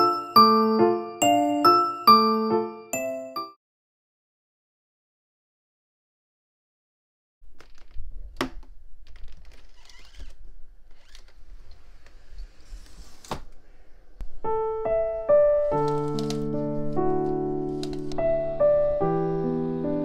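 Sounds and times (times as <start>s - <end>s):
soft piano music: 0.0s - 3.6s, 14.2s - 20.0s.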